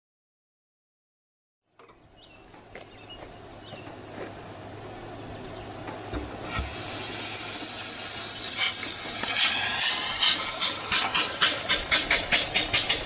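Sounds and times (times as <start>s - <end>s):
steam exhaust chuffs: 4.8s - 13.0s
steam hissing: 6.4s - 13.0s
high squeal: 6.5s - 13.0s.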